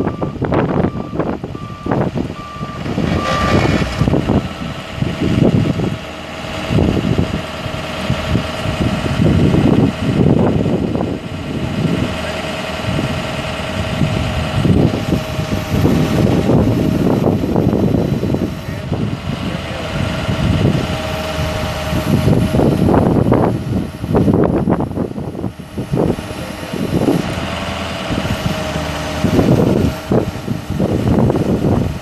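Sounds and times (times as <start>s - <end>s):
backup alarm beeping: 0.0s - 4.2s
diesel truck engine running: 0.0s - 32.0s.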